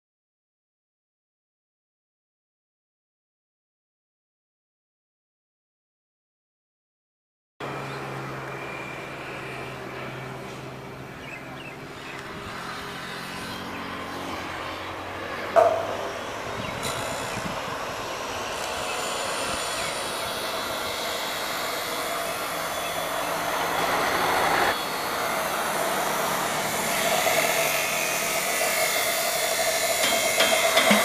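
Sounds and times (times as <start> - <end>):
steady outdoor rushing noise: 7.6 - 31.0
sharp knocks: 15.6 - 16.1.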